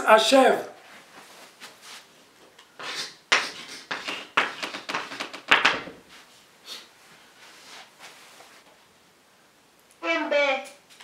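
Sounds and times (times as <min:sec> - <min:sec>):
chalk scratching on blackboard: 0:02.8 - 0:05.3.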